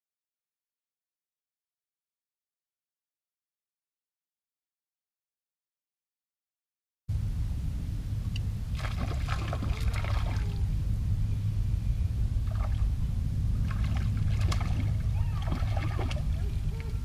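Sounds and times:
low rumble: 7.1 - 17.0
small waves lapping: 8.7 - 10.7, 12.4 - 17.0.

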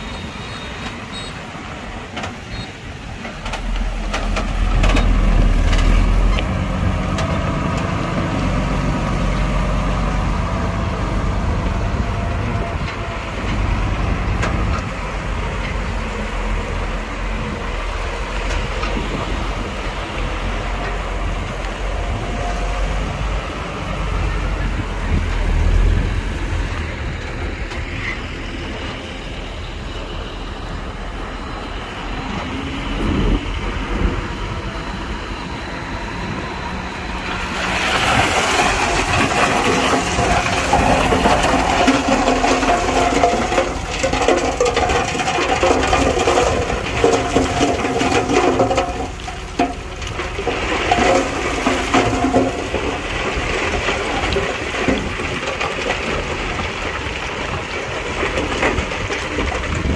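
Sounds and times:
heavy diesel machinery rumbling: 0.0 - 59.9
loose rock sliding and scraping: 37.2 - 59.9.

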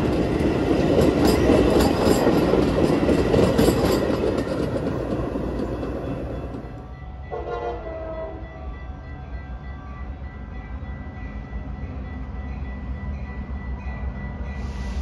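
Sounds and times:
train rumbling: 0.0 - 15.0
locomotive air horn blast: 7.3 - 8.4.

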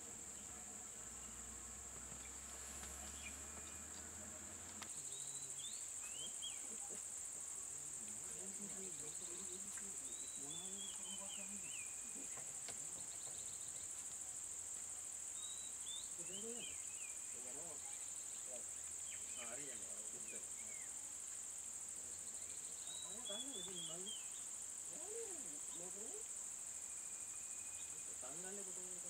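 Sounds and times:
insects droning: 0.0 - 29.0
bird chirps: 2.2 - 3.9, 4.9 - 7.0, 22.4 - 24.5.

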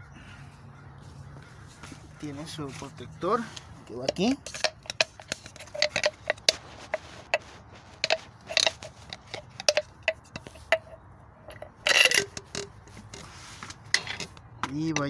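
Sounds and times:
rubber boot scraping on shaft: 1.1 - 15.0
clicks and taps of handling: 3.5 - 7.4.

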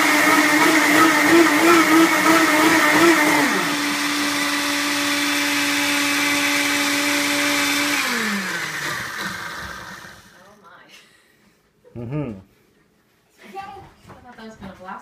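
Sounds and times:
blender motor winding down: 0.0 - 10.4
blender motor running steadily: 0.0 - 10.5.

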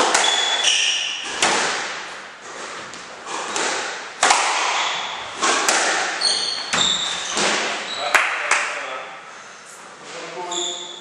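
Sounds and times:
squash ball hit by racquet: 0.0 - 7.9
ball smacking off court walls: 1.2 - 2.0, 2.8 - 7.9.

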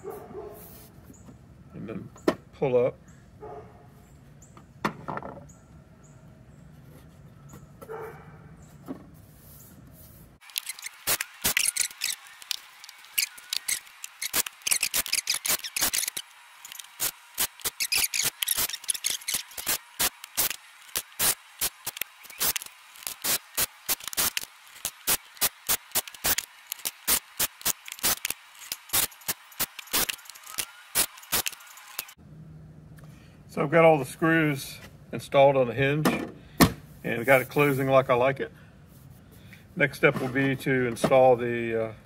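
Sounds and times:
cordless drill driving screws: 10.4 - 32.2.

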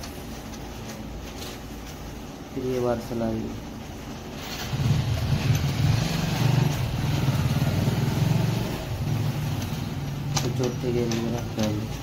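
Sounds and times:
motorcycle engine running: 4.4 - 11.8.

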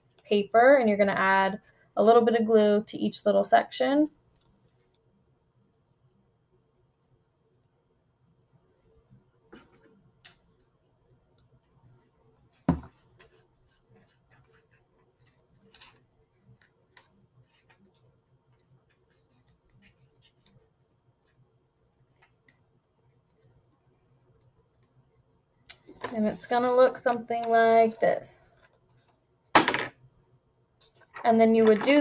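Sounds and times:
knock on tabletop: 12.7 - 12.9
paper rustling: 25.9 - 28.0.

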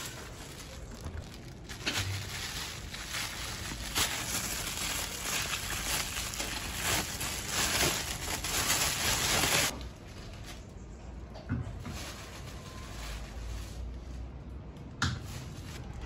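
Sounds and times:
plastic bag crinkling: 0.0 - 10.7.

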